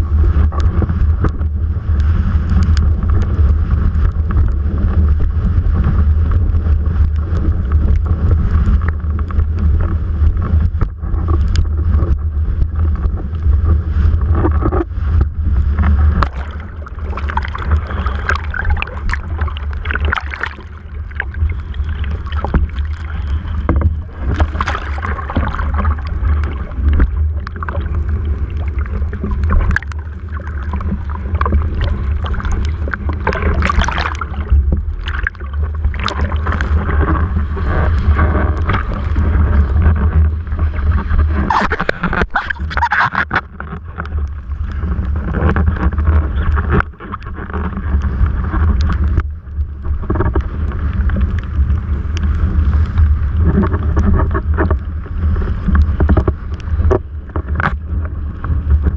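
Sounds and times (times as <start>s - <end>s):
wind buffeting microphone: 0.0s - 58.9s
water splashing: 12.8s - 49.2s.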